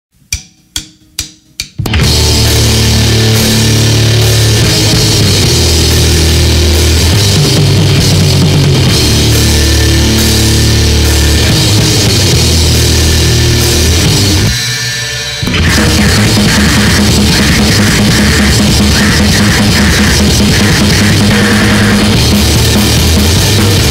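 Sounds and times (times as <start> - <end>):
drumstick clicks: 0.3 - 2.0
grindcore band playing: 0.4 - 23.9.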